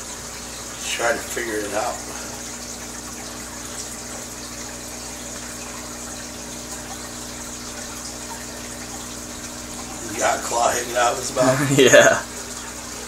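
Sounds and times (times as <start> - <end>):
water splashing and bubbling: 0.0 - 13.0.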